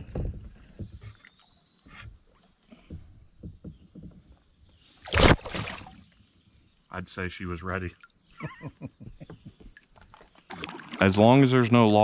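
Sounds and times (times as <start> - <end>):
faint knocks: 2.8 - 4.4
water sounds: 4.9 - 8.7, 9.4 - 12.0
fish splashing: 5.0 - 6.2, 9.8 - 11.2.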